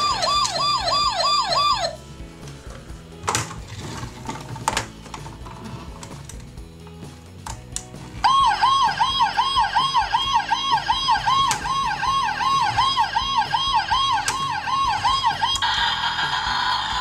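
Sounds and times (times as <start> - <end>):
toy siren wailing: 0.0 - 2.0, 8.2 - 17.0.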